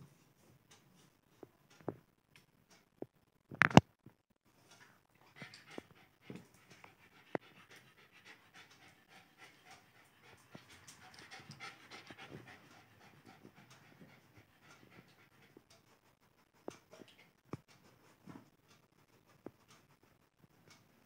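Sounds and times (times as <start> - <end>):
puppy panting: 4.7 - 20.2.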